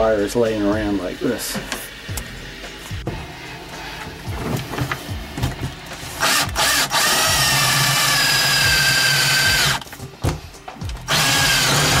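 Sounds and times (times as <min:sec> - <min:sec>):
cordless drill whining: 0:06.2 - 0:09.8, 0:11.1 - 0:12.0.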